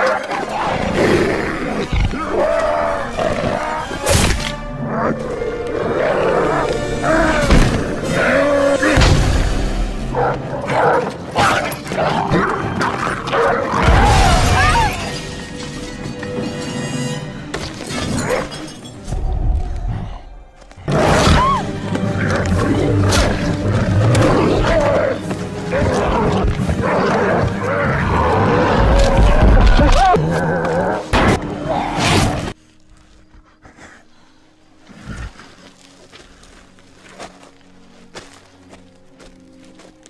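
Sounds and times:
action soundtrack music: 1.6 - 32.6.

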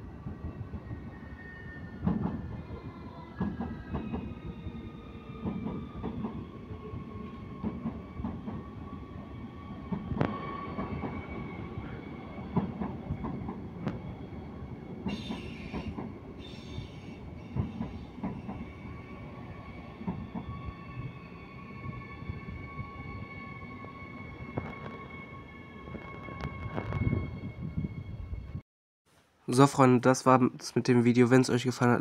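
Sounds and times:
train whine: 0.0 - 28.6
train wheels clicking over rail joints: 15.0 - 18.8
high wheel squeals: 15.1 - 28.3.

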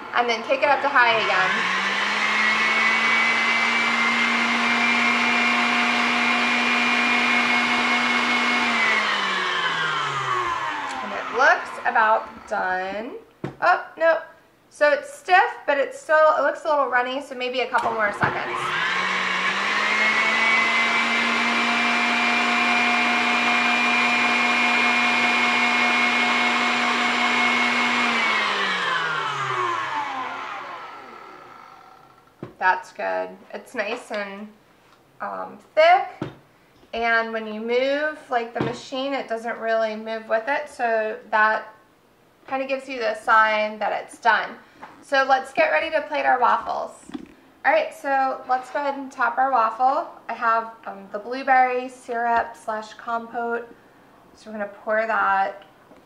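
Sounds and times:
stand mixer motor whine: 0.0 - 12.6, 17.8 - 32.3.

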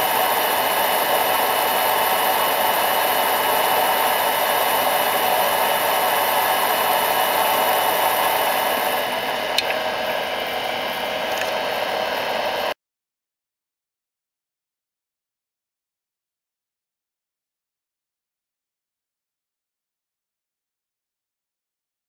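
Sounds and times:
micro lathe running: 0.0 - 12.8.

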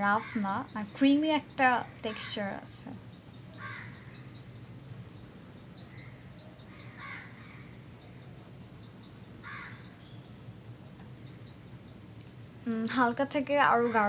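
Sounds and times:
low steady hum: 0.0 - 14.0
crow cawing: 3.5 - 4.2, 6.8 - 7.6, 9.4 - 9.9.

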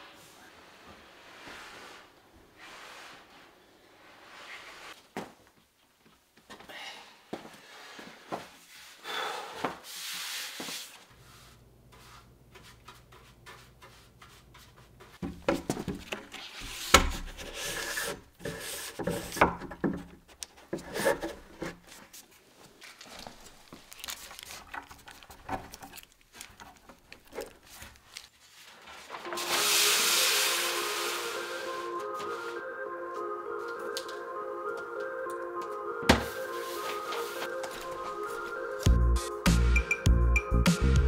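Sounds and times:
wood rubbing: 23.2 - 32.6.

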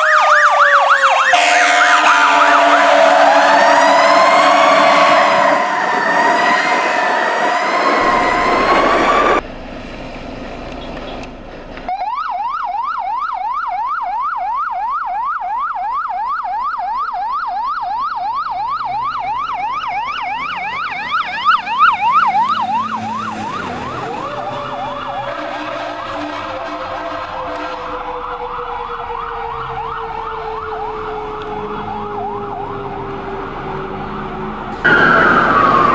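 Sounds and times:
electronic yelp siren: 0.0 - 9.4, 11.9 - 35.9
low siren tone sliding down: 0.0 - 9.4, 11.9 - 35.9
wavering siren wail: 0.0 - 9.4, 11.9 - 35.9.

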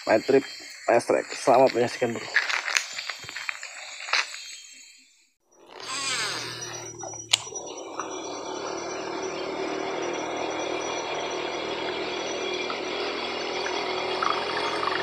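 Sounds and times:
fishing reel spool whirring: 5.6 - 15.0.

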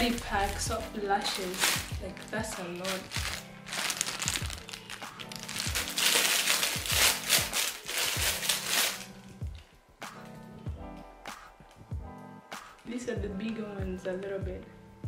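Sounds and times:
plastic packaging crinkling: 0.0 - 9.1
background music with steady beat: 0.0 - 15.0.

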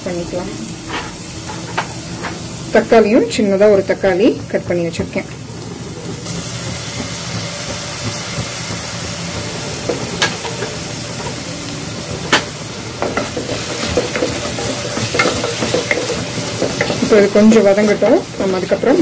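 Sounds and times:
onion sizzling in hot oil: 0.0 - 19.0
spatula scraping pan: 13.0 - 19.0.

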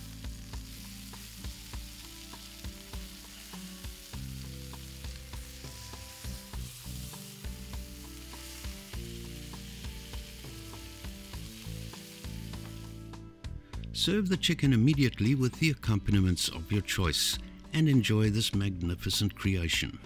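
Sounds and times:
oil popping and crackling: 0.0 - 13.1
meat sizzling in frying pan: 0.0 - 13.6.

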